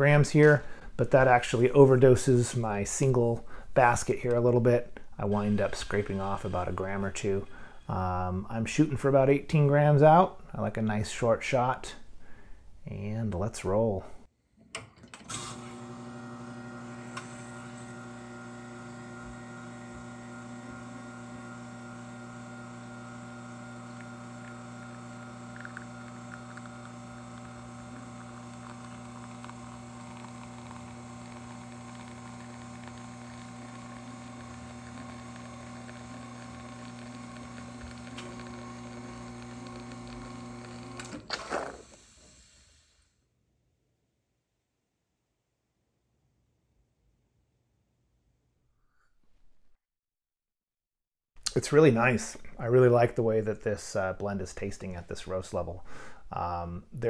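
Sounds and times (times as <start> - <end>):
espresso machine pump humming: 15.3 - 42.8.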